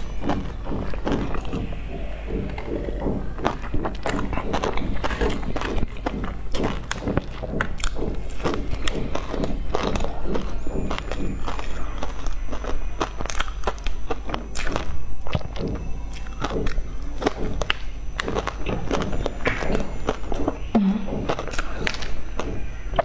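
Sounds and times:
chewing with mouth clicks: 0.0s - 23.0s
person humming: 20.7s - 21.5s.

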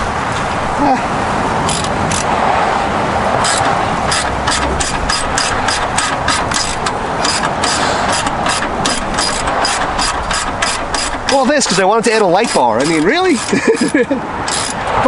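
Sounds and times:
rushing background noise: 0.0s - 15.0s
socket ratchet clicking: 3.4s - 14.9s.

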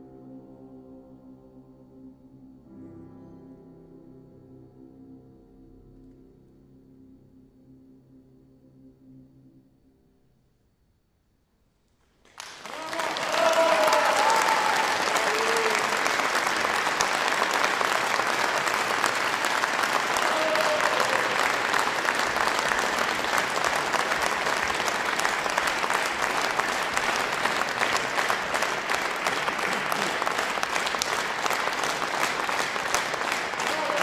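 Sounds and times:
audience applauding: 12.2s - 34.0s.

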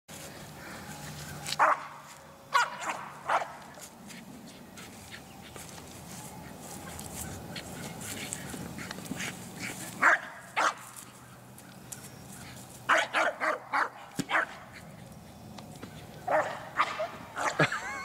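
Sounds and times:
dog barking: 1.6s - 3.6s, 10.0s - 10.9s, 12.9s - 14.6s, 16.3s - 17.6s.

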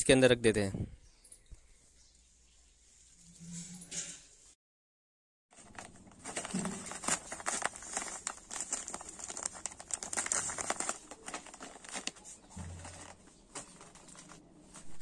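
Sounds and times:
plastic packets crinkling: 5.6s - 15.0s.

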